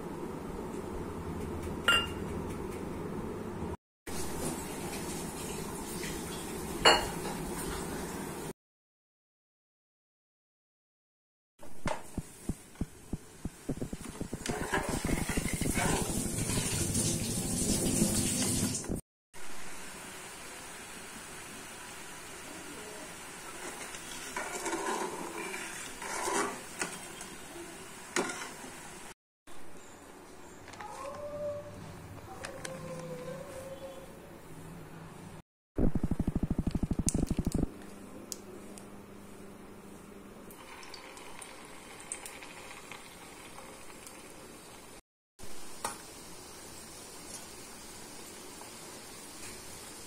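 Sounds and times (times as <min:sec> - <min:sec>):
spoon clinking against pan: 0:01.9 - 0:02.2
small pops of frying: 0:11.8 - 0:15.8, 0:40.5 - 0:44.4, 0:45.7 - 0:46.3, 0:47.1 - 0:49.8
batter sizzling in hot oil: 0:13.4 - 0:29.1, 0:40.6 - 0:50.0
spoon scraping metal pan: 0:24.3 - 0:27.0.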